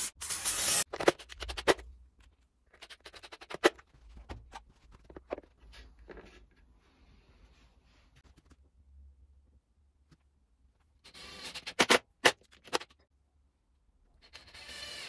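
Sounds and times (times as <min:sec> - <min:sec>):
cordless drill boring into wood: 0:14.4 - 0:15.0.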